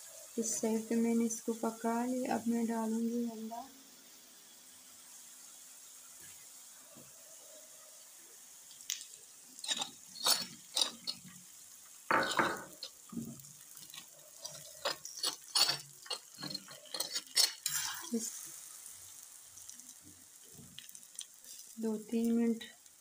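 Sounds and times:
light frying sizzle: 0.0 - 23.0
metal spatula scraping griddle: 9.6 - 11.4, 13.7 - 18.3.

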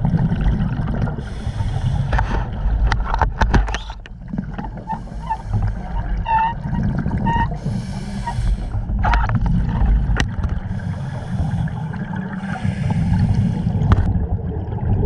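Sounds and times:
bubbling exhale underwater: 0.0 - 2.9, 3.7 - 15.0
hissing inhale through regulator: 1.2 - 2.4, 4.8 - 6.2, 7.4 - 9.0, 10.6 - 14.1.

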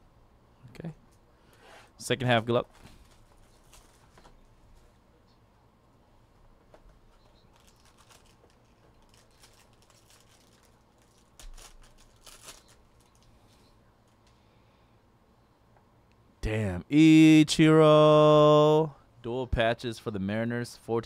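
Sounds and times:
foil wrapper crinkling: 2.7 - 4.4, 7.1 - 13.4.

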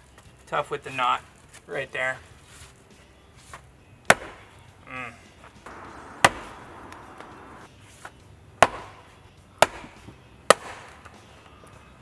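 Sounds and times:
axe chopping wood: 4.0 - 4.6, 5.6 - 7.4, 8.6 - 11.2.

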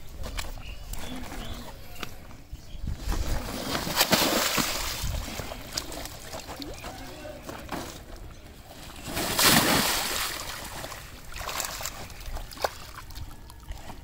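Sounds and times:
fish splashing in water: 3.4 - 7.0, 8.9 - 14.0.

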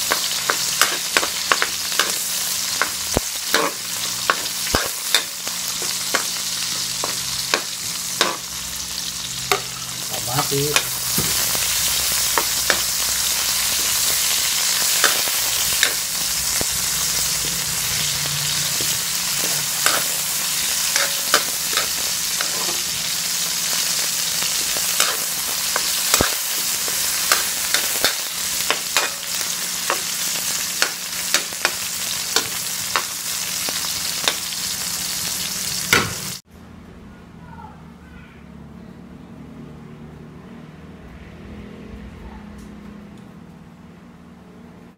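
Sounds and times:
oil sizzling in a wok: 0.0 - 36.4
metal spoon scraping a pan: 0.1 - 8.5, 10.5 - 23.0.

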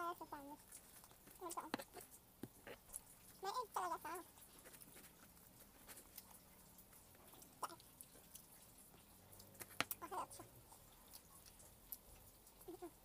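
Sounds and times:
chewing: 0.0 - 13.0
hands rustling sandwich: 4.4 - 7.5.

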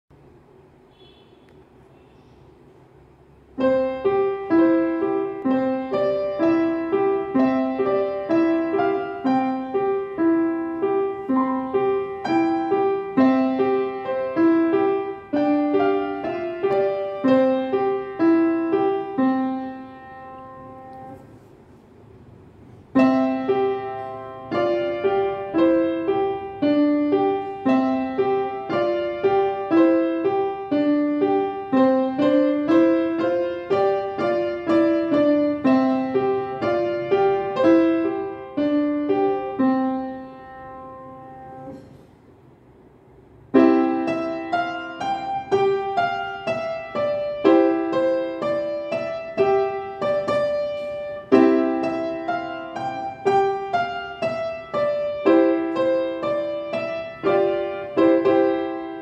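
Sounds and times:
child playing piano notes: 3.3 - 21.6, 22.5 - 42.2, 43.4 - 59.0.

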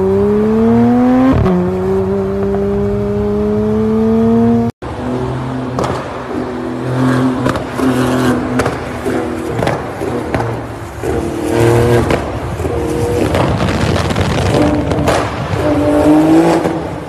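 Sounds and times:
car engine in a tunnel: 0.0 - 17.0
sports car accelerating hard: 0.0 - 17.0
exhaust cracks: 5.6 - 17.0.

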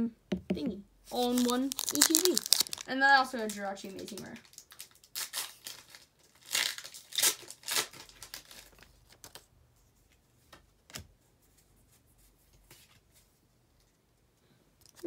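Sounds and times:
foil wrapper crinkling and tearing: 1.1 - 9.4.

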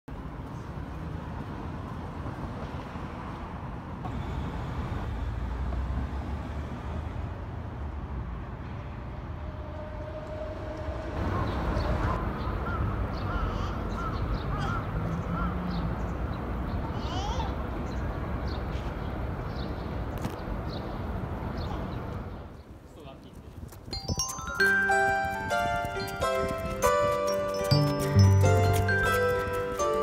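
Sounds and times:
traffic rumble: 0.1 - 30.0.

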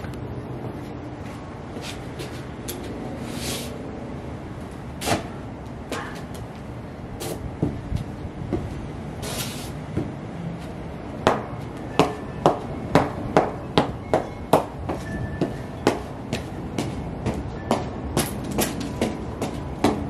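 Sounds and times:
outdoor background noise: 0.0 - 20.0
boots tapping on concrete: 4.6 - 20.0.

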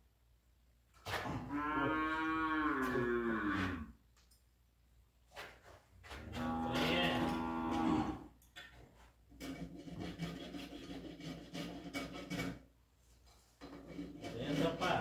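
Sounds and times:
rasp filing hoof: 9.4 - 12.6, 13.6 - 15.0.

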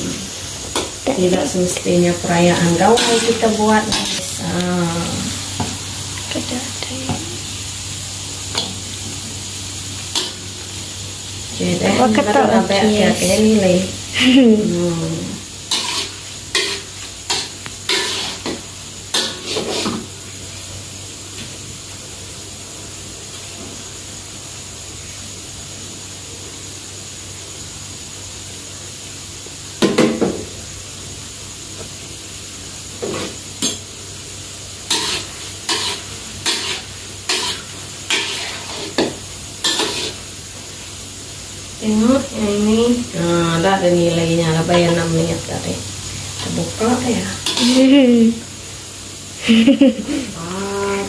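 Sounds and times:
utensil scraping and knocking wok: 0.0 - 7.5, 8.4 - 14.0, 14.6 - 20.2, 33.0 - 40.9, 41.9 - 48.5
dough sizzling in hot oil: 0.0 - 51.0.

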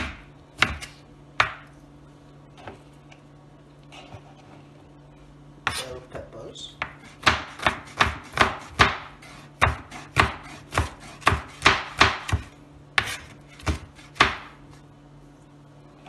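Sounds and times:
knife chopping on plastic board: 0.0 - 1.7, 6.8 - 14.6.

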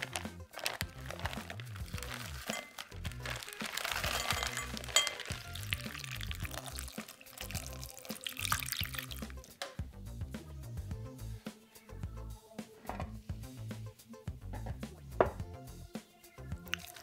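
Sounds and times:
frozen berries clicking into bowl: 0.0 - 9.6, 16.7 - 17.0
background music: 0.0 - 17.0
liquid pouring: 0.6 - 9.5, 16.7 - 17.0.

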